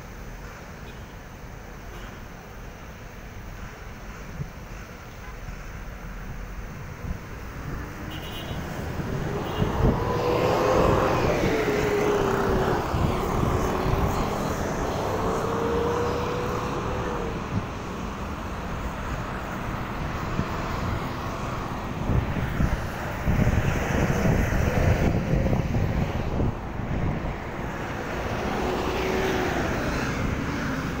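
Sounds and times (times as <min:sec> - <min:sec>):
wind rumble on microphone: 0:06.1 - 0:31.0
engine passing by: 0:07.0 - 0:31.0.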